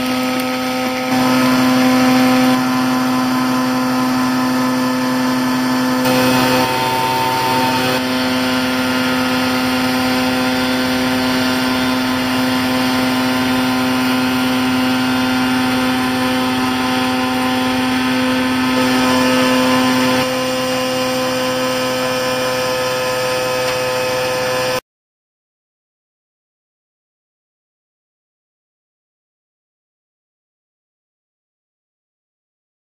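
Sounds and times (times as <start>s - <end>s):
truck engine and blower drone: 0.0s - 24.8s.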